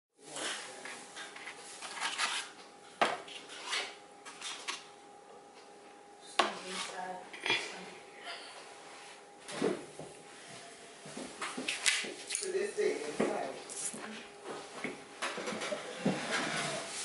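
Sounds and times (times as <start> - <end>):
paper rustling: 0.4 - 2.6.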